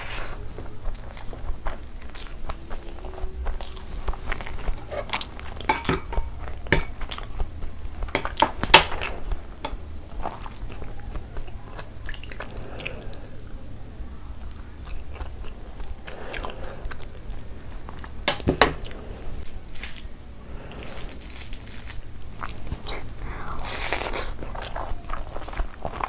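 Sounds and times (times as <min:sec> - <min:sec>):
wet chewing: 0:00.0 - 0:26.0.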